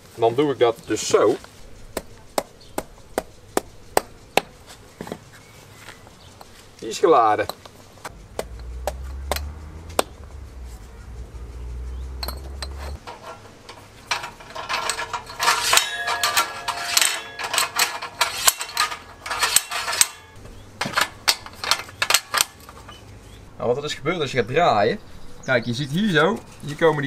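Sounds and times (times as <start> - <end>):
metal tubes clinking: 6.4 - 23.2
low rumble: 8.1 - 13.0.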